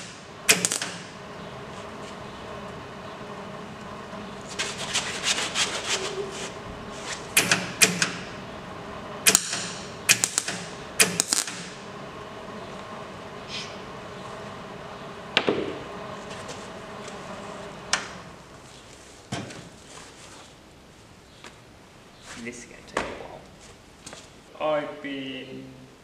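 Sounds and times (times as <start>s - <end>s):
welder crackling: 0.0s - 19.9s.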